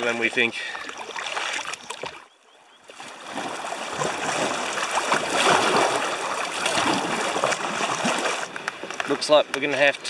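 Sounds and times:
water rushing over rocks: 3.1s - 10.0s.

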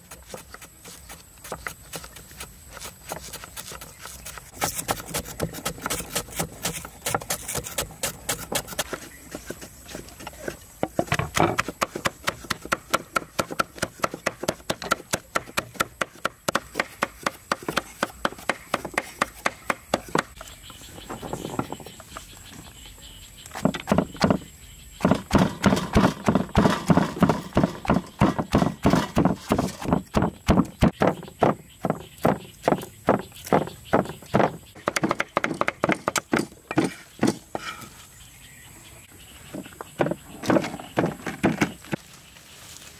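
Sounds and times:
cleaver chopping on wooden block: 10.8s - 20.4s.

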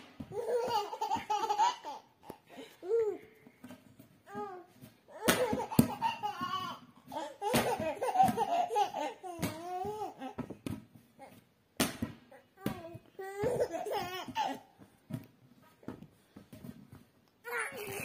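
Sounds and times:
baby laughing and squealing: 5.1s - 10.3s, 13.4s - 14.7s.

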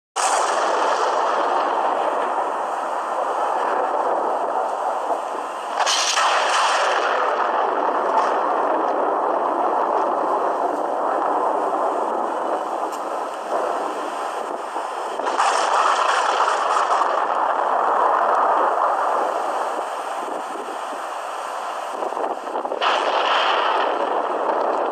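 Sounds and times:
thunder rumbling: 0.2s - 24.9s.

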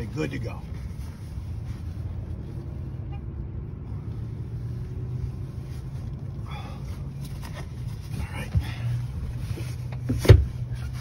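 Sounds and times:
vehicle engine idling: 0.0s - 11.0s
seat cover clicks and rustles: 7.1s - 11.0s.

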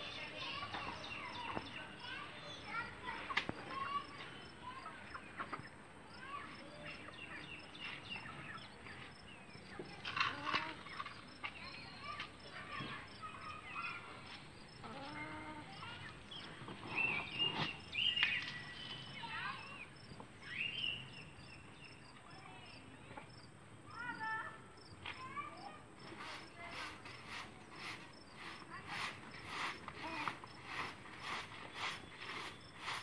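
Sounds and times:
insects chirping: 0.0s - 33.0s
chickens clucking: 4.9s - 5.8s
broom scratching floor: 26.0s - 33.0s.

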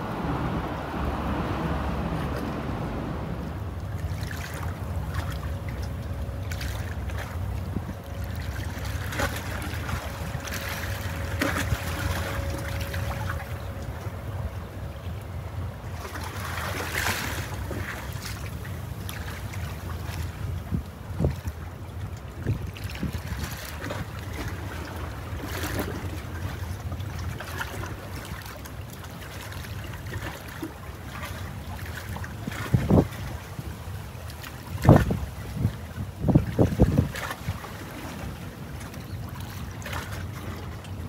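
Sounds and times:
wind on microphone: 0.0s - 5.5s, 20.0s - 21.7s, 22.4s - 24.9s, 32.4s - 33.9s, 34.6s - 38.3s
boat engine rumble: 0.0s - 41.0s.

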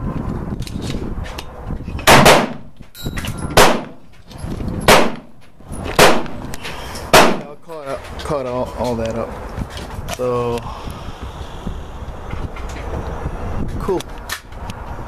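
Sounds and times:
gunshots: 2.1s - 2.7s, 3.5s - 4.0s, 4.9s - 5.4s, 6.0s - 6.4s, 7.1s - 7.5s.

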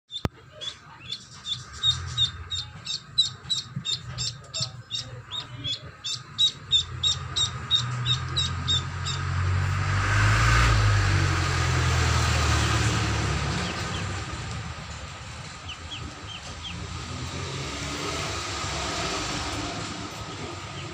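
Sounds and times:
duckling peeping: 0.1s - 9.5s, 15.4s - 17.2s
broad rushing noise: 8.5s - 20.9s.

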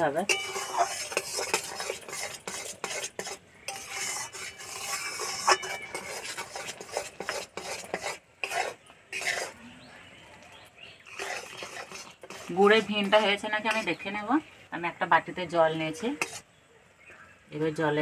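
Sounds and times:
spatula scraping metal wok: 0.0s - 9.8s, 11.0s - 14.6s, 15.7s - 16.5s.

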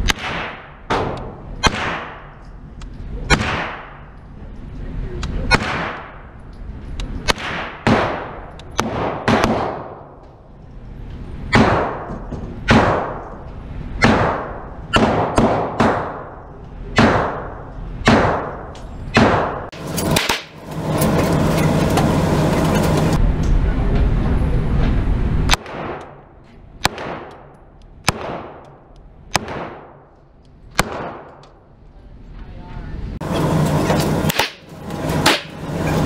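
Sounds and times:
gunshots with reverberant tail: 0.0s - 2.4s, 3.3s - 4.2s, 5.5s - 6.4s, 7.2s - 10.2s, 11.5s - 13.4s, 14.0s - 20.6s, 25.5s - 31.4s
steady loud noise: 0.0s - 26.9s.

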